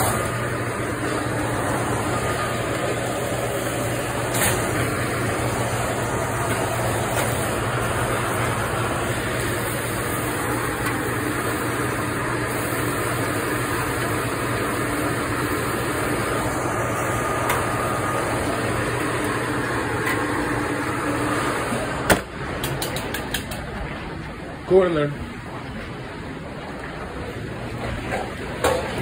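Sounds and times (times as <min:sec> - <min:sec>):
kitchen fans humming: 0:00.0 - 0:29.0.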